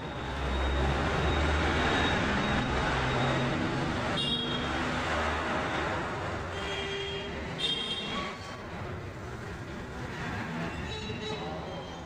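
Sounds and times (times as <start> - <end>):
road traffic noise: 0.0 - 12.0.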